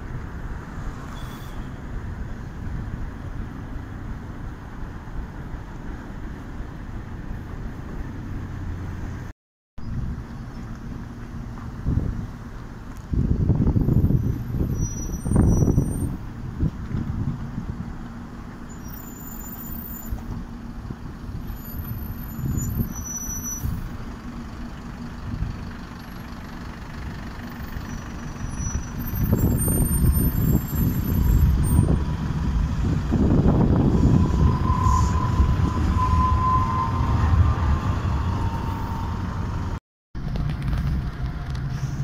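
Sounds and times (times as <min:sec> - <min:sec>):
train rolling on rails: 0:10.8 - 0:42.0.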